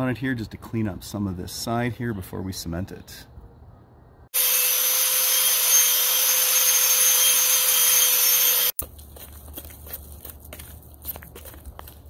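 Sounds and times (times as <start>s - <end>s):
angle grinder grinding concrete: 4.4s - 8.8s.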